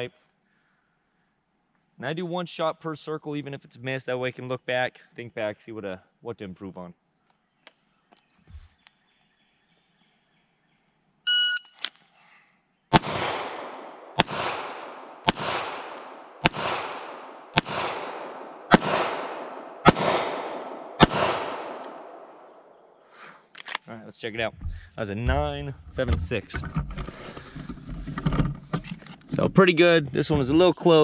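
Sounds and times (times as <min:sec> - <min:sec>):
pistol shots echoing: 0:12.9 - 0:23.0.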